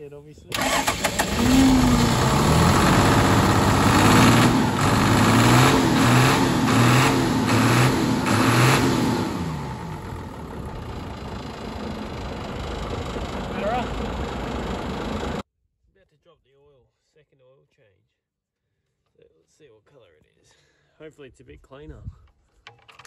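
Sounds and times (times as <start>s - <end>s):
diesel truck engine revving: 0.5s - 15.4s.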